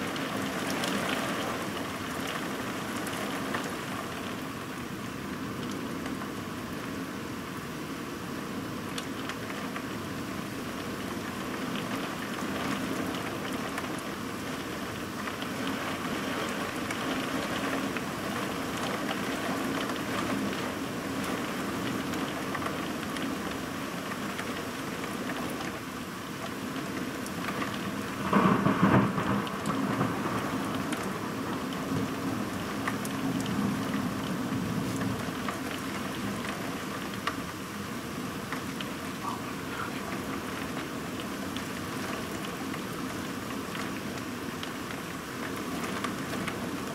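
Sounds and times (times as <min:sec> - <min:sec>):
heavy rain falling: 0:00.0 - 0:46.9
loud thunder: 0:28.2 - 0:30.6.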